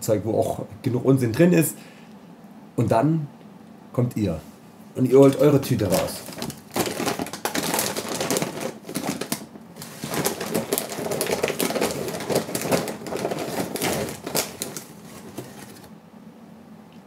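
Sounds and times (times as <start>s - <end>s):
paper bag rustling and crackling: 5.1s - 15.9s.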